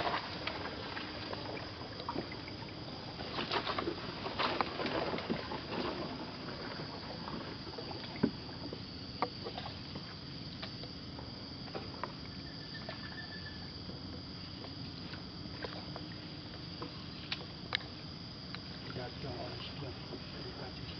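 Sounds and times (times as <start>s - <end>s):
paddle knocking and splashing water: 0.0s - 10.8s
high background hum: 0.0s - 20.9s.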